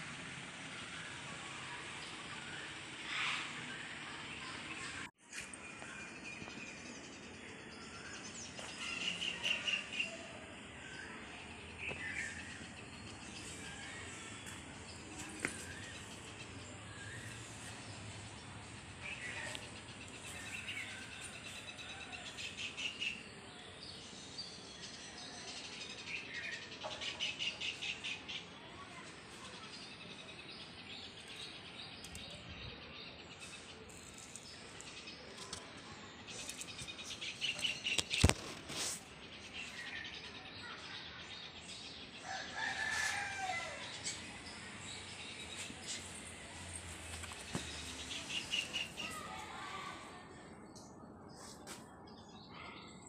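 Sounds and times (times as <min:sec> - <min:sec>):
birds chirping and calling: 0:02.0 - 0:23.8, 0:36.3 - 0:51.4.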